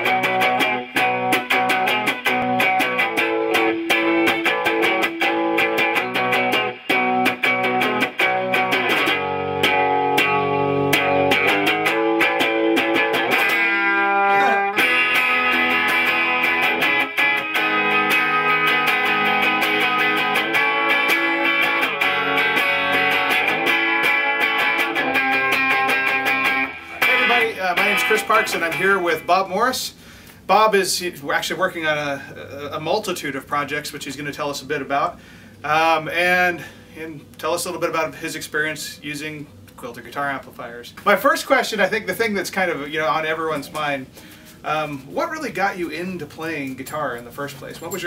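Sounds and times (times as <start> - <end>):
clean electric guitar: 0.0 - 29.6.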